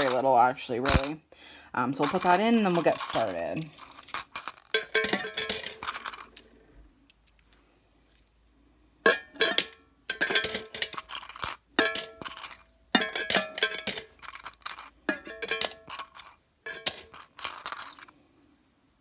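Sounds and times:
coins clinking in tin: 0.0s - 0.2s, 0.9s - 1.2s, 2.0s - 6.5s, 9.5s - 18.1s.

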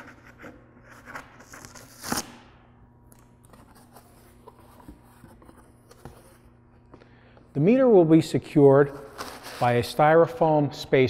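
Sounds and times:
cardboard tape ripping: 1.0s - 2.5s.

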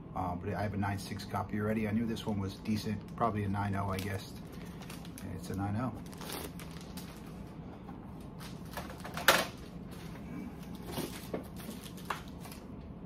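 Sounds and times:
plastic rustles: 3.8s - 12.7s.

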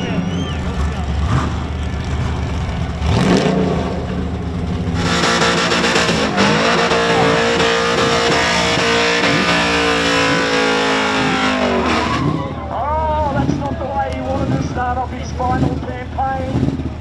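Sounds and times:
car engine revving: 0.0s - 17.0s.

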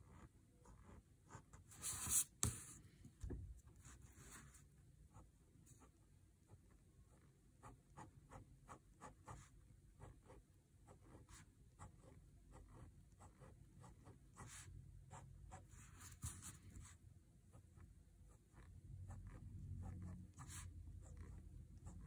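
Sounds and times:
pen scratching on paper: 0.0s - 2.8s, 3.7s - 22.0s.

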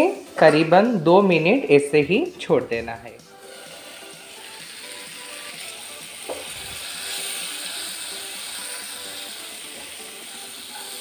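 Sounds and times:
soft background music: 0.0s - 11.0s
vegetables sizzling in a pan: 3.4s - 11.0s.

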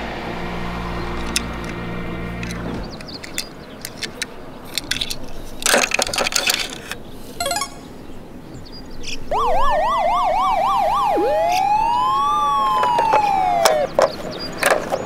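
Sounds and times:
toy car clicking on plastic: 2.4s - 7.0s, 12.8s - 15.0s
electronic police siren: 9.3s - 14.0s.

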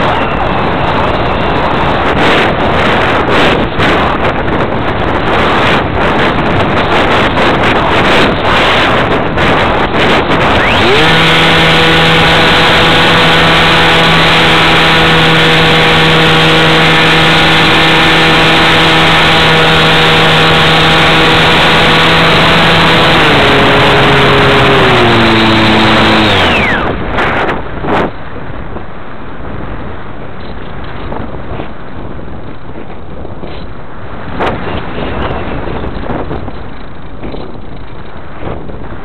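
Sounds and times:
model airplane motor: 0.0s - 27.4s
wind rushing over microphone: 0.0s - 39.0s.

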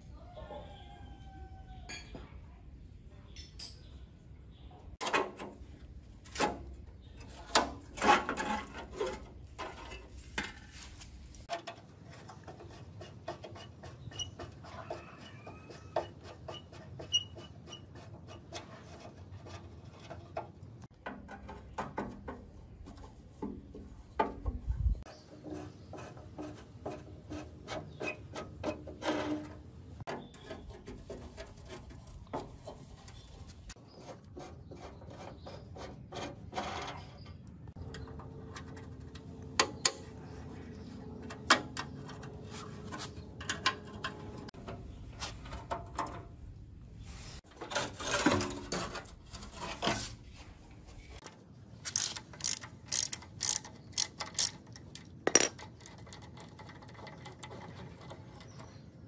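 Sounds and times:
wrenches clinking on metal: 51.8s - 58.5s
socket ratchet clicking: 51.9s - 55.1s.

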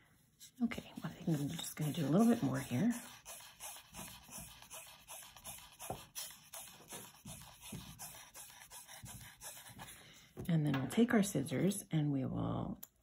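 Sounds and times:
thread rubbing on cardboard: 0.4s - 10.0s.

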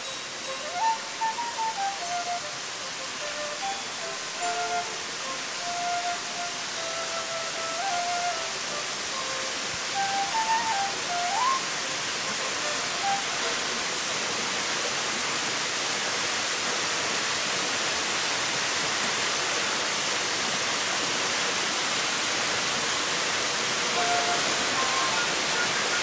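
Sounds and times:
soft background music: 0.0s - 11.7s
waterfall rushing: 0.0s - 26.0s.

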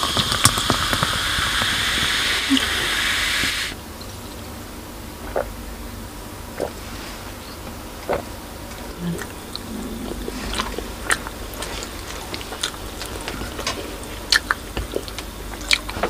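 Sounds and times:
soda fizzing as poured: 0.0s - 3.8s
soft gulps: 5.2s - 5.6s, 6.5s - 15.9s.

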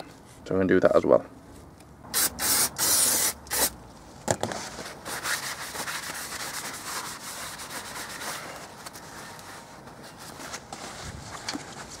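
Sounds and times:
cloth rubbing on metal disc: 4.7s - 12.0s.

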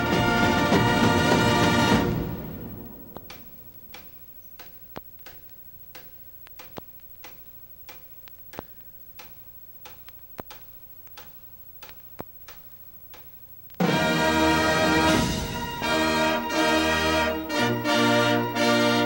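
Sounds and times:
low steady hum: 0.0s - 19.0s
faint irregular clicks: 3.1s - 13.8s.

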